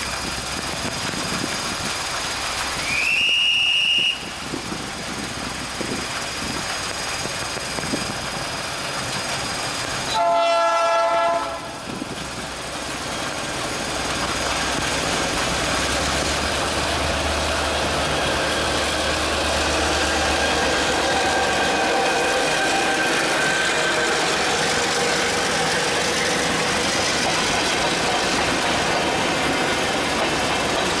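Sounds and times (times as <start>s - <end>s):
heavy rain hissing: 0.0s - 31.0s
locomotive engine rumbling: 0.0s - 31.0s
train coaches rolling by: 0.0s - 31.0s
locomotive horn blast: 10.1s - 11.8s.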